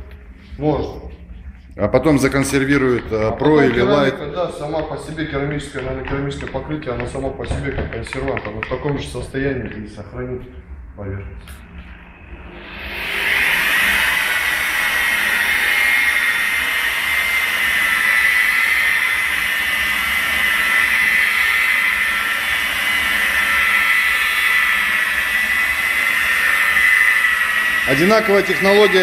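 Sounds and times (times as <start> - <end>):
electric polisher whining: 11.6 - 29.0.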